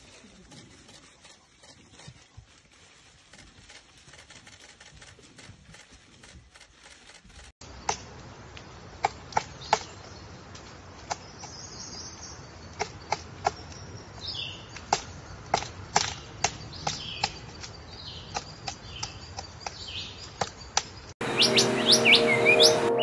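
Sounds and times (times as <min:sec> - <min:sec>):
songbird song: 0:07.6 - 0:23.0.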